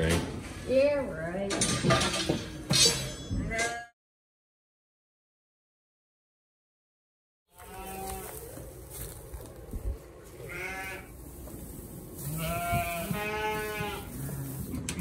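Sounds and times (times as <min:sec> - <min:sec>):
sheep bleating: 0:07.5 - 0:08.4, 0:10.4 - 0:11.1, 0:12.2 - 0:14.6.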